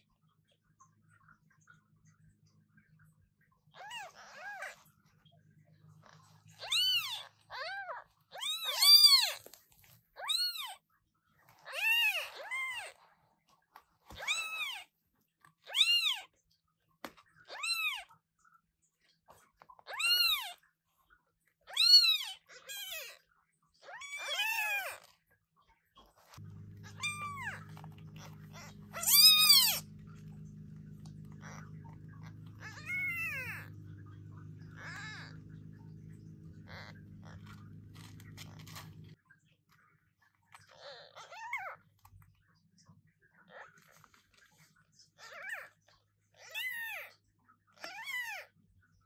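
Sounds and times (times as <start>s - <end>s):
kittens meowing loudly: 6.6s - 9.4s, 26.4s - 39.1s.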